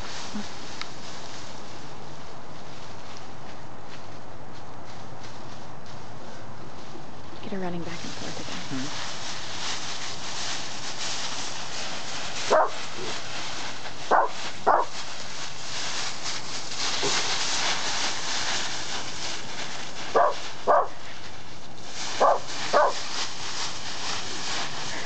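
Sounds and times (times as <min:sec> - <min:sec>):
dry leaves rustling: 0:00.0 - 0:25.0
dog barking: 0:12.5 - 0:12.8, 0:14.1 - 0:15.0, 0:20.1 - 0:21.0, 0:22.2 - 0:23.0.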